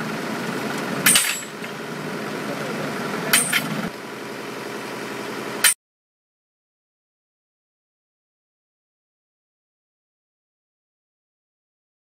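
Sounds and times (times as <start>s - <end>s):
drill rig engine running: 0.0s - 5.8s
hammer striking metal rods: 1.0s - 1.7s, 3.3s - 3.8s.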